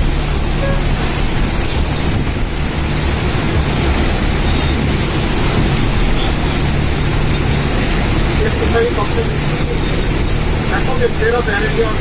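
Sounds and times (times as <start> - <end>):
heavy rain: 0.0 - 12.0
wind buffeting microphone: 1.1 - 8.4.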